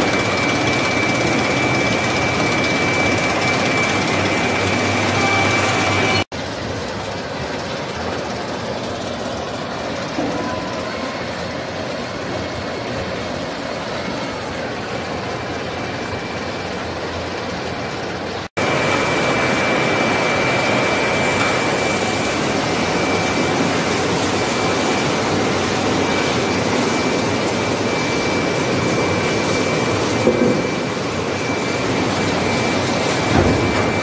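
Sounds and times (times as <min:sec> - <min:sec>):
thin high whine: 0:00.0 - 0:06.3, 0:18.6 - 0:34.0
sawmill machinery running: 0:00.0 - 0:34.0.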